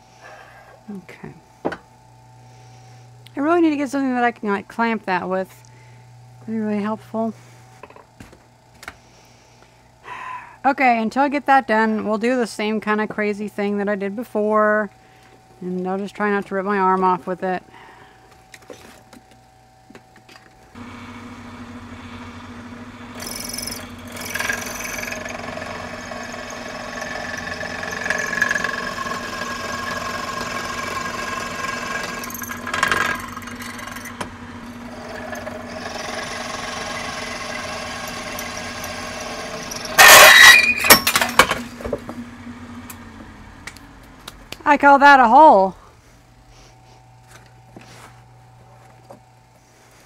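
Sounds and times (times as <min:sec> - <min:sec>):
drill press motor humming: 0:04.4 - 0:10.0, 0:17.6 - 0:44.2
drill bit squealing: 0:23.1 - 0:41.4
sharp rattling clatter: 0:23.2 - 0:34.2.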